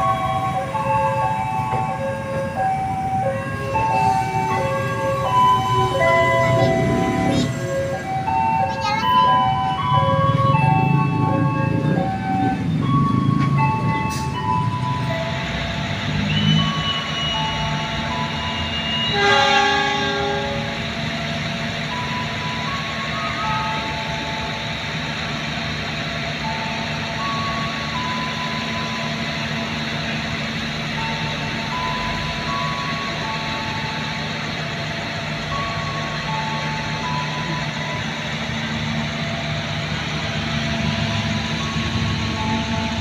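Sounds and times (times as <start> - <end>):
electronic melody: 0.0 - 19.4, 30.9 - 43.0
train carriages rolling past: 0.0 - 43.0.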